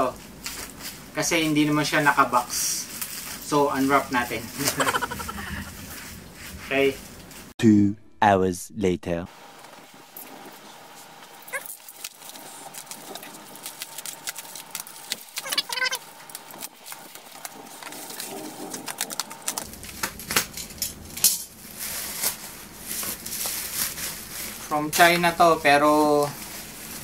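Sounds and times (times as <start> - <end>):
plastic wrapping crinkling: 11.5 - 27.0.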